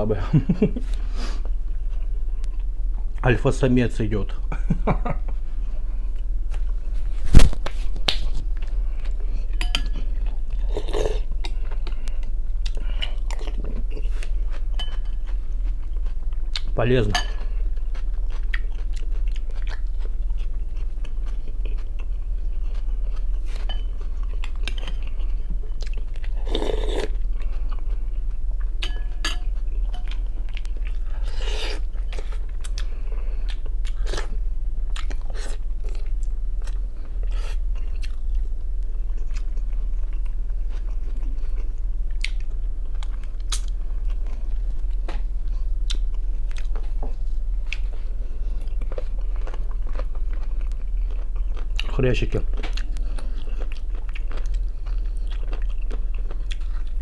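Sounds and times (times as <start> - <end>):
steady low hum: 0.0 - 57.0
chewing and biting meat: 17.7 - 23.4, 52.6 - 57.0.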